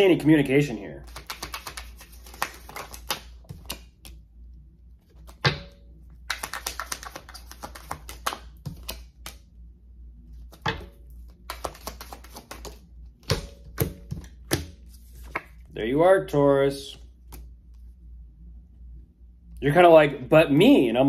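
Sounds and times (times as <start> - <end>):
cards being shuffled: 1.0 - 4.2, 6.2 - 9.4, 11.3 - 15.7
card taps: 6.3 - 9.4, 11.5 - 15.5.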